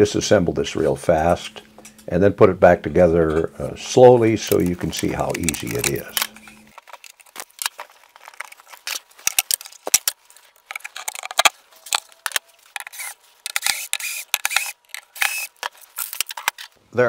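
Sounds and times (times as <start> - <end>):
metallic clicks and clatter: 4.0 - 16.8
cordless drill whine: 12.0 - 15.6.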